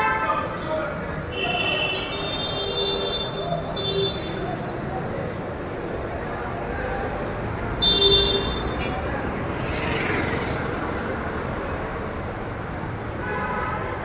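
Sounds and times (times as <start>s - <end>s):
road traffic noise: 0.0s - 14.0s
motor scooter passing: 9.3s - 11.6s.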